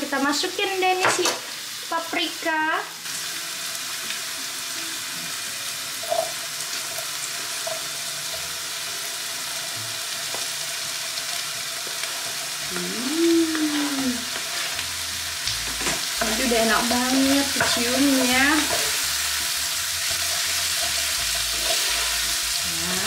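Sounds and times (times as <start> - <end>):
oil sizzling in a pot: 0.0 - 23.0
rising-then-falling voice sound: 12.8 - 14.2.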